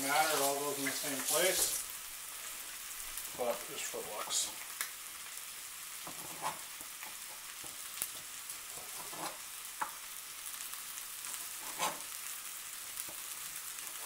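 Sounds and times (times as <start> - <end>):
steady background hiss: 0.0 - 7.1.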